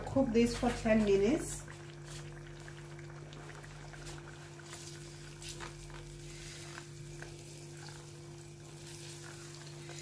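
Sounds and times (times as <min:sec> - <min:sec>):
sauce sizzling in a pot: 0:00.0 - 0:10.0.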